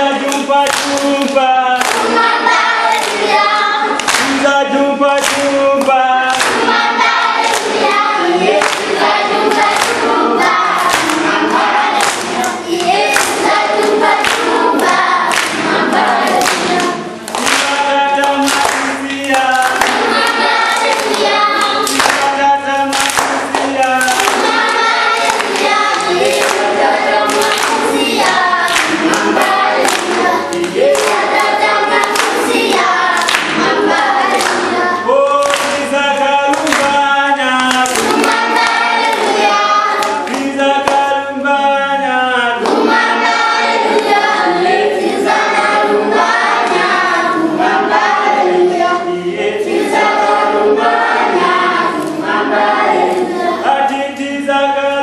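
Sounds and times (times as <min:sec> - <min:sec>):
children singing together: 0:00.0 - 0:55.0.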